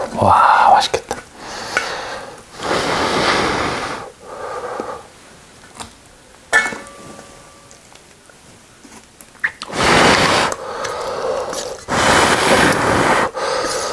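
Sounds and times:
blowing air on noodles: 1.4s - 5.1s, 9.6s - 13.9s
metal pot lid clink: 6.5s - 7.7s.

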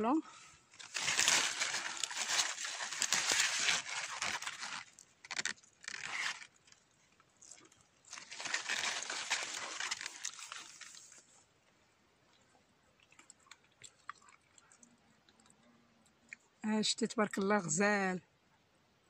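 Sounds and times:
leaves rustling: 0.0s - 6.8s, 7.4s - 11.4s.

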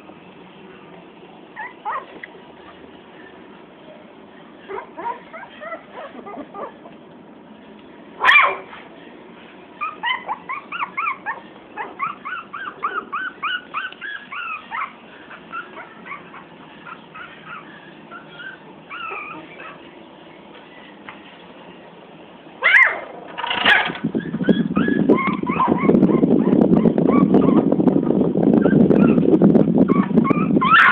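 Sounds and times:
puppies whimpering and yipping: 1.5s - 2.9s, 4.6s - 7.0s, 9.8s - 20.0s, 22.6s - 30.9s.

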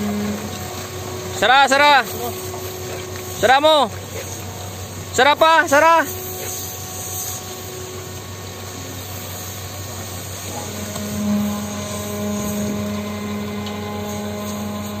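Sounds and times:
machinery drone: 0.0s - 15.0s
strong steady hum: 0.0s - 15.0s.

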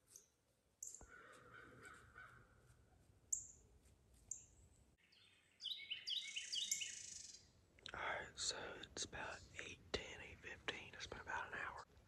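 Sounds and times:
high bird chirps: 4.3s - 7.5s.

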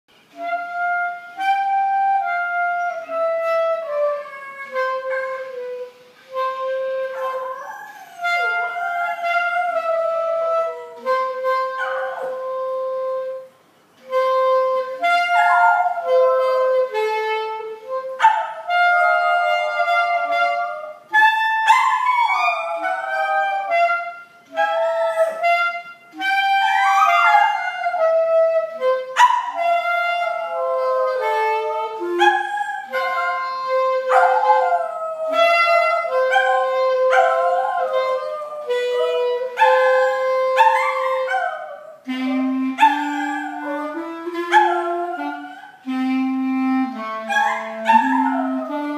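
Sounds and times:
clarinet playing anthem: 0.2s - 48.9s
dog howling: 7.1s - 10.8s, 21.6s - 23.9s, 24.5s - 25.7s, 26.3s - 28.2s, 29.3s - 42.2s, 42.8s - 45.8s, 47.3s - 48.9s.

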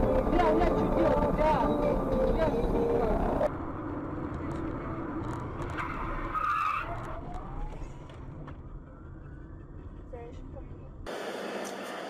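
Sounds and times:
car road and engine noise: 0.0s - 12.0s
tyres squealing in a skid: 5.6s - 8.0s.

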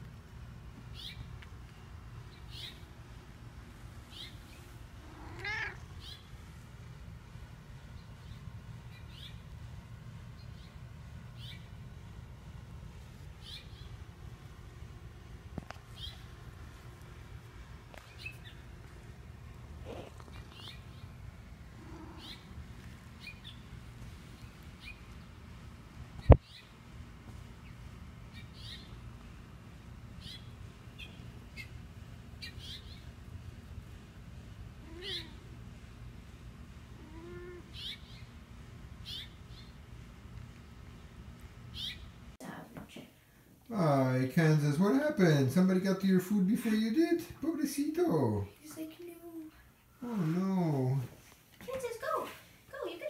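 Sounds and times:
low background rumble: 0.0s - 42.4s
bird chirping: 1.0s - 2.9s, 4.1s - 4.7s, 6.0s - 6.4s, 8.0s - 9.5s, 10.4s - 11.8s, 13.4s - 14.0s, 15.9s - 16.3s, 18.0s - 18.6s, 20.3s - 21.2s, 21.9s - 22.6s, 23.2s - 23.8s, 24.4s - 25.2s, 26.2s - 26.8s, 27.6s - 29.0s, 30.2s - 31.8s, 32.4s - 33.2s, 37.7s - 38.4s, 39.0s - 39.8s, 41.7s - 42.2s
cat meowing: 5.0s - 6.2s, 21.8s - 22.5s, 34.8s - 35.4s, 37.0s - 37.8s.

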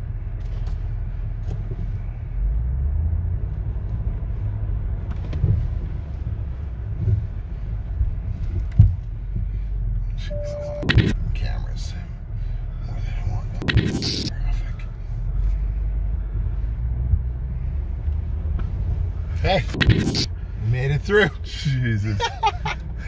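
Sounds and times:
low rumble inside car cabin: 0.0s - 23.0s
short beep: 10.2s - 11.2s, 13.6s - 14.4s.

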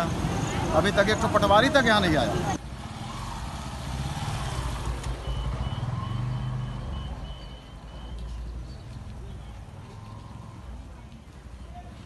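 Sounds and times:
vehicle engines on road: 0.0s - 12.0s
motorcycle passing: 2.4s - 7.4s.

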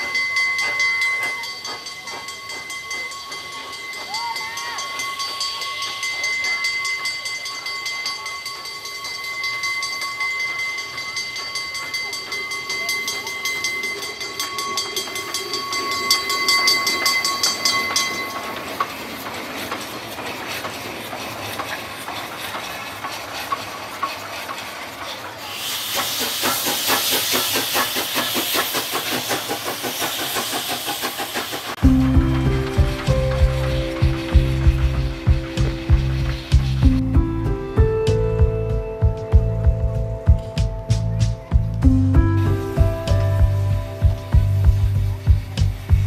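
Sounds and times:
steam locomotive passing slowly: 0.0s - 46.0s
wheels ticking and clanking: 0.0s - 46.0s
loud hiss of steam: 10.8s - 37.1s, 42.2s - 46.0s.

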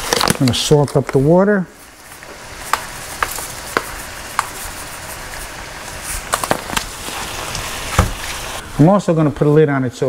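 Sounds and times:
oil popping and crackling: 0.0s - 4.9s, 5.5s - 8.6s
vegetables sizzling in a frying pan: 1.8s - 8.8s.

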